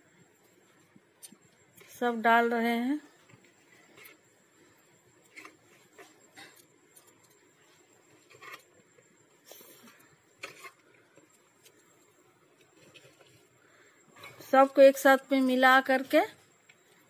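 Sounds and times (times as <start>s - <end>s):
soft clicks and rustles: 3.1s - 14.6s.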